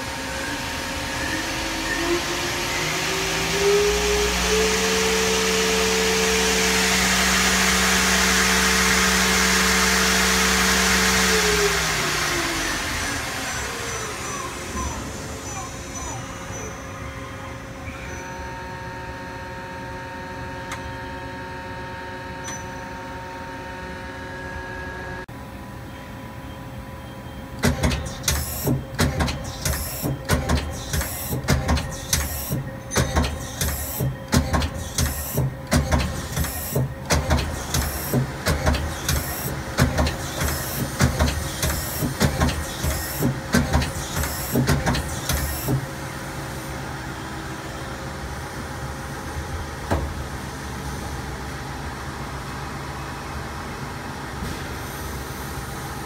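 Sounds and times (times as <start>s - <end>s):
lathe machine hum: 0.0s - 16.5s
tool turret mechanical clunks: 27.6s - 45.9s.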